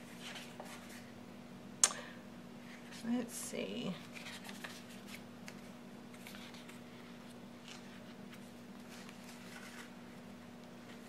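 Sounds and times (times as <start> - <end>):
paper rustling: 0.1 - 1.1, 3.9 - 11.0.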